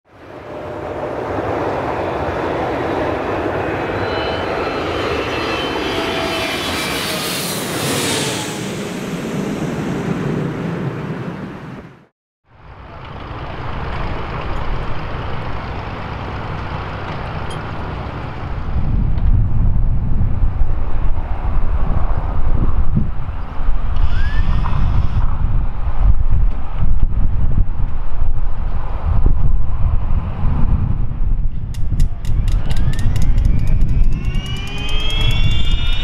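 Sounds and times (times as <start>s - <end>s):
jet aircraft passing overhead: 0.1s - 25.5s, 28.7s - 36.0s
steady low rumble: 12.5s - 23.9s, 25.3s - 36.0s.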